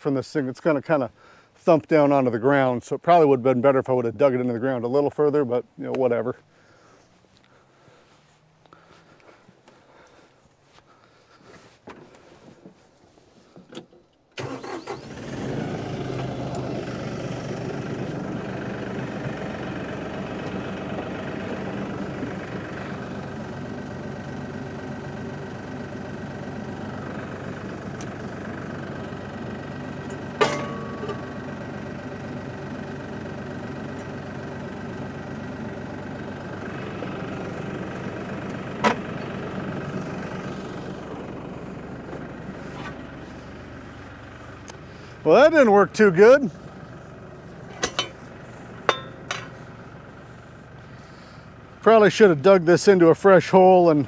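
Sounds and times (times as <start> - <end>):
tractor diesel engine idling: 0.0 - 54.0
sharp metallic clanks: 30.1 - 31.4, 47.7 - 49.6.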